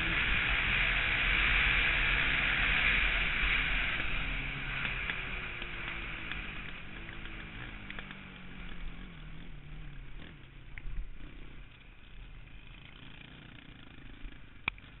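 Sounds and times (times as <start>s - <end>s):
rushing noise: 0.0s - 9.3s
quad engine easing off: 0.0s - 15.0s.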